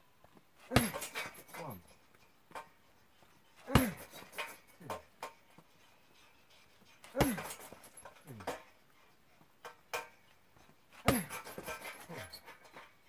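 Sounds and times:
kicks thudding on punching bag: 0:00.7 - 0:01.3, 0:03.7 - 0:04.2, 0:07.2 - 0:07.7, 0:11.0 - 0:11.8
person grunting: 0:00.7 - 0:01.8, 0:03.6 - 0:04.1, 0:07.1 - 0:07.6, 0:11.0 - 0:11.4.

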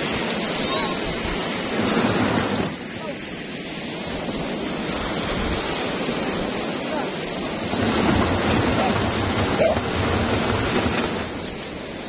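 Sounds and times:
boat hull scraping over gravel: 0:07.5 - 0:12.0.

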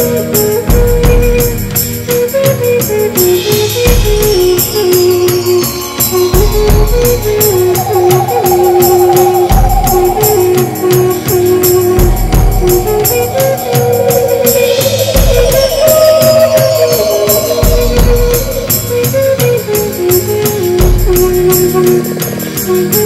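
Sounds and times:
flute melody: 0:00.0 - 0:23.0
shaker beat: 0:00.0 - 0:23.0
high wavering tone: 0:03.4 - 0:21.3
deep bass: 0:06.6 - 0:19.5.

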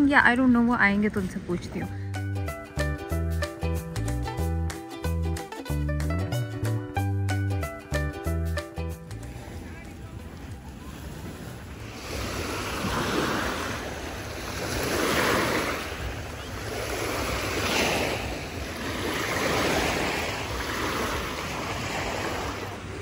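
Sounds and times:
waves washing on a pebbly beach: 0:09.2 - 0:23.0.

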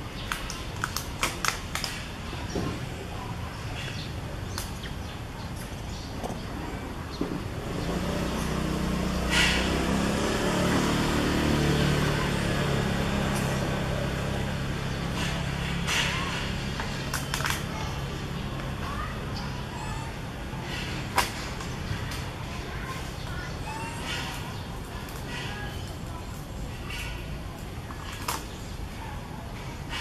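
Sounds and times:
vehicle engine hum: 0:07.2 - 0:25.4.

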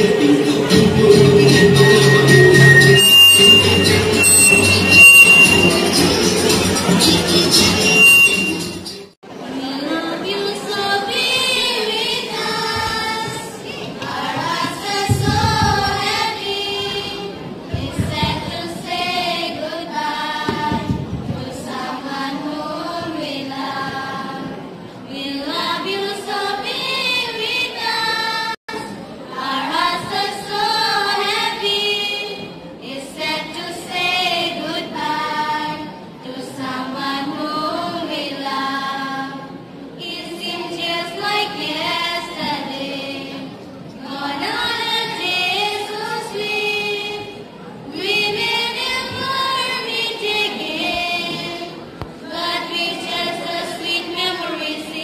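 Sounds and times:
children's choir singing: 0:00.0 - 0:55.0
low thumps: 0:14.4 - 0:16.3.

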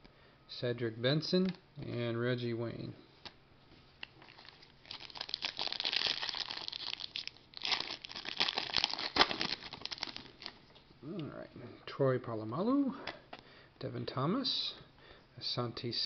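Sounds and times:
foil wrapper crinkling and tearing: 0:04.2 - 0:10.6.

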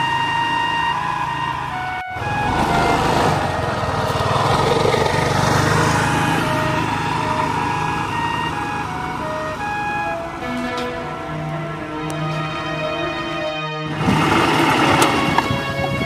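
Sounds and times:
vehicle engine running: 0:00.0 - 0:12.4
background music melody: 0:00.0 - 0:16.0.

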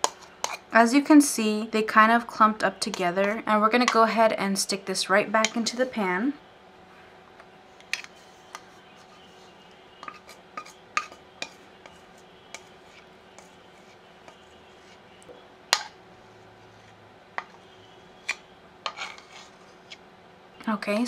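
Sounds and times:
metal spatula scraping a bowl: 0:00.0 - 0:00.7, 0:07.8 - 0:15.0, 0:15.7 - 0:20.0.

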